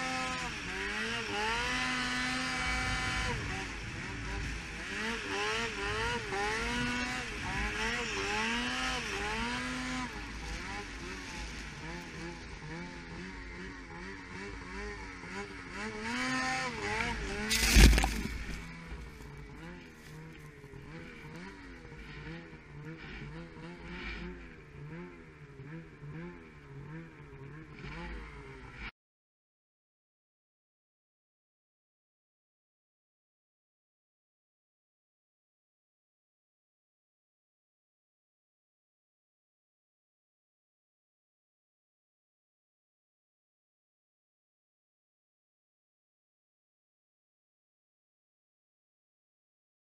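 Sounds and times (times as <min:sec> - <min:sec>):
snowmobile engine revving: 0:00.0 - 0:28.9.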